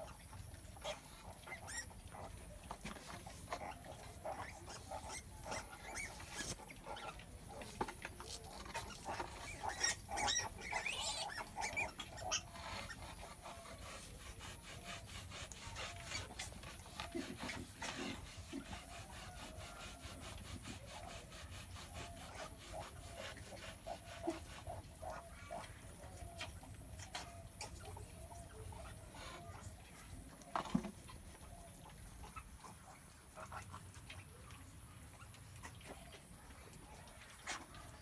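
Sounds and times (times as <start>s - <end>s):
piglets squeaking: 0.0s - 18.9s
stick rubbing bristly hide: 2.8s - 6.8s, 7.6s - 24.9s.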